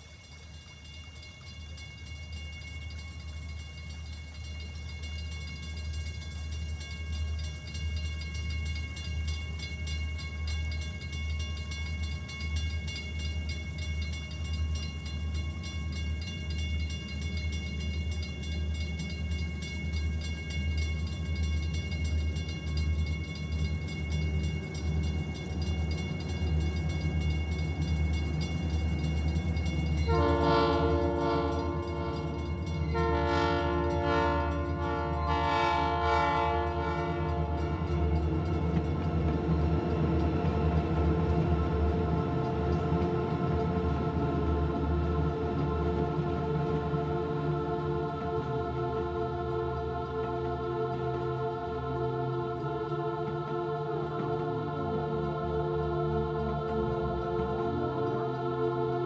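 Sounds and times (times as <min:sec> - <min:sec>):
horn-like chords: 0:30.1 - 0:38.2.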